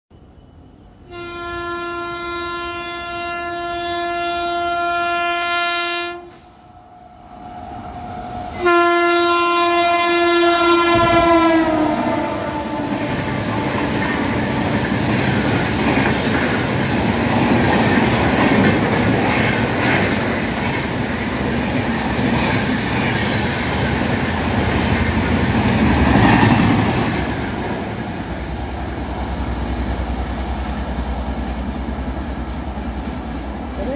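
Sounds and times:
locomotive horn blasts: 1.0s - 6.5s, 8.5s - 14.6s.

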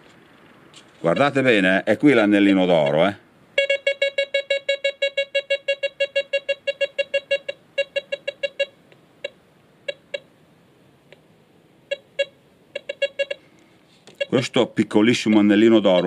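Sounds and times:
metal detector beeps: 1.0s - 1.4s, 2.1s - 10.3s, 11.9s - 16.0s.

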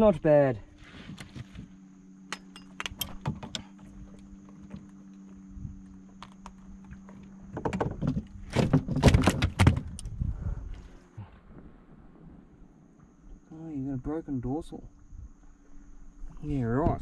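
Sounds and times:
steady low hum: 0.0s - 17.0s
hooks and net rattling: 2.3s - 5.3s.

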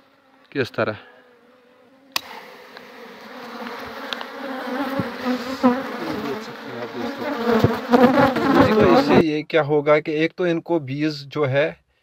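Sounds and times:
honeybees buzzing: 0.0s - 9.2s.

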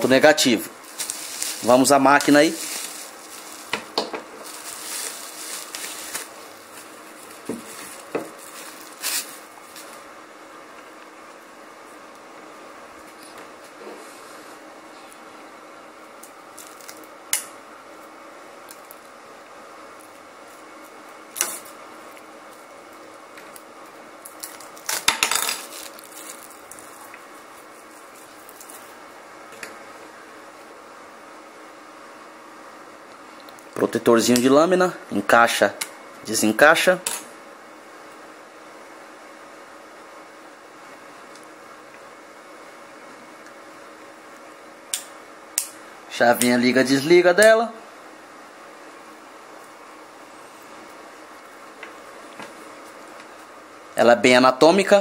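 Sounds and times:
low hiss: 0.0s - 13.4s
bubble wrap bag crackling: 0.8s - 10.1s, 16.5s - 17.1s, 24.2s - 29.0s.

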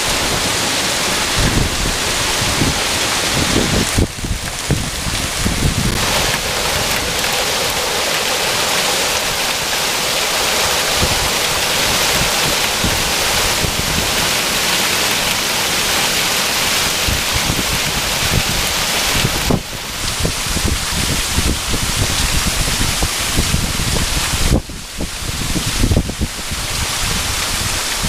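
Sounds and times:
heavy rain and hail: 0.0s - 28.0s
water gushing from downspout: 0.0s - 28.0s.

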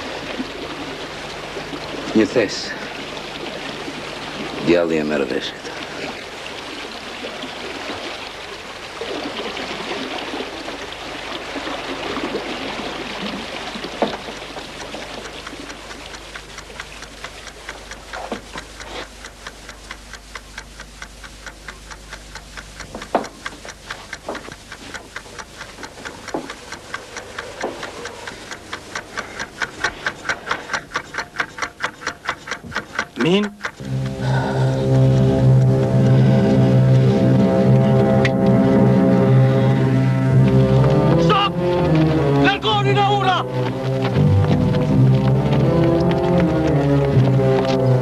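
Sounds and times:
flowing water: 0.0s - 48.0s
fast even ticking: 14.2s - 38.5s, 40.4s - 48.0s.

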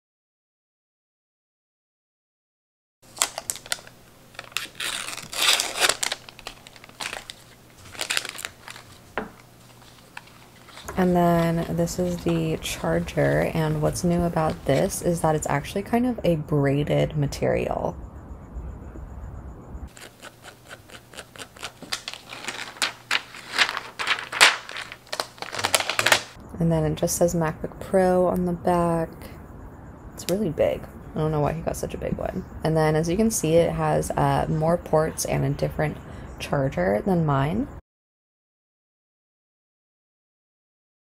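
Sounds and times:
plastic wrapping crinkling: 3.1s - 15.0s, 19.9s - 26.4s.

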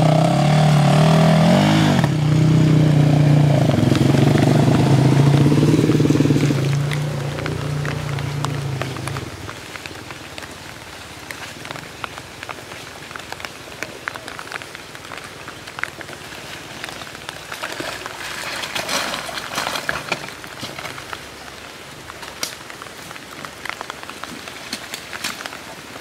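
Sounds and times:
motorcycle passing close by: 0.0s - 9.3s
rain pattering on leaves: 0.0s - 26.0s
water dripping: 0.0s - 26.0s.

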